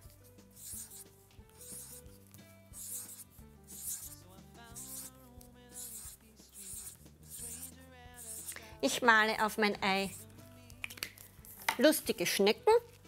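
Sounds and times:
marker scratching on paper: 0.0 - 10.3
soft background music: 0.0 - 13.0.

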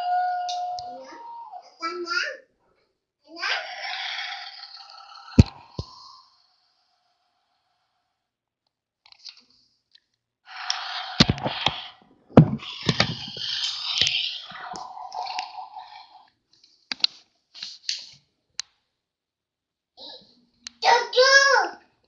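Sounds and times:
hissy scraping: 10.5 - 16.3
plastic parts clicking and knocking: 12.4 - 14.2.

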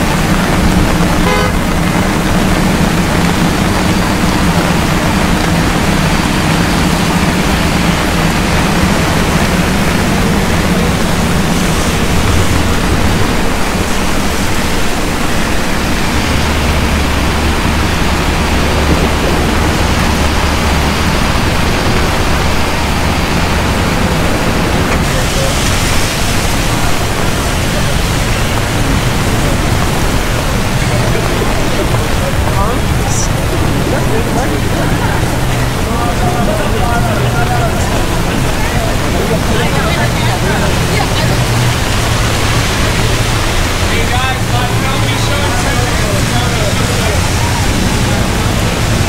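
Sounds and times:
car engines running: 0.0 - 49.0
deep engine rumble: 0.0 - 49.0
heavy rain on pavement: 0.0 - 49.0.

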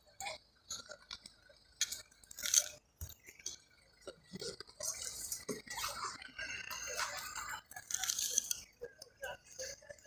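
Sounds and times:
rustling and crunching on stony ground: 0.7 - 5.7.

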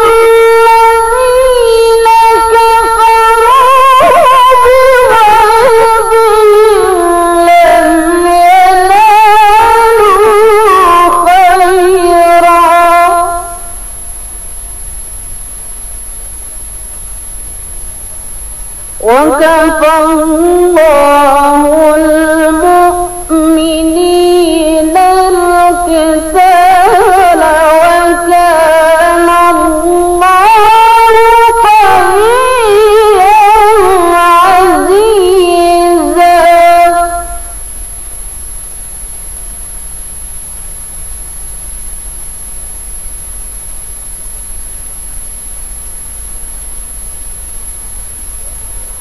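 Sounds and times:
woman reciting in melodic chant: 0.0 - 13.9, 18.9 - 37.6.

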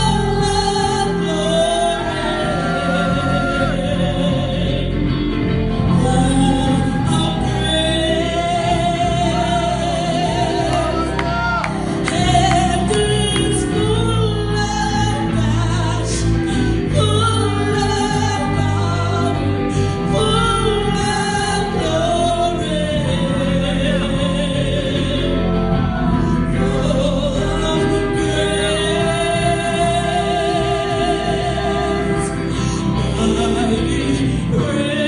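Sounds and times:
woman singing gospel song: 0.0 - 5.2, 5.8 - 35.0
amplified electric guitar: 0.0 - 35.0.

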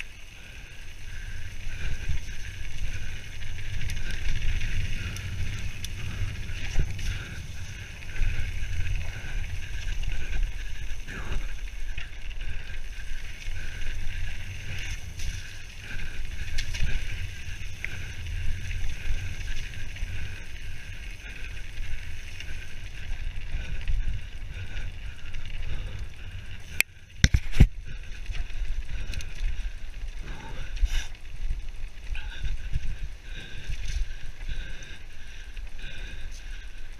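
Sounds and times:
tyres rumbling on dirt: 0.2 - 25.4
wind buffeting microphone: 0.4 - 29.9.

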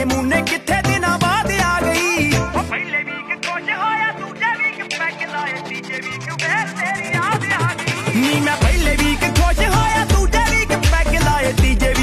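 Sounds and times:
person singing: 0.0 - 12.0
song with steady beat: 0.0 - 12.0.

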